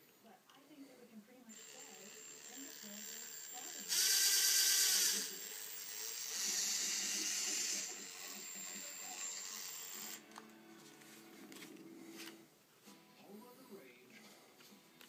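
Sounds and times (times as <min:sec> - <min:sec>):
cordless drill motor spinning: 0:01.5 - 0:10.3.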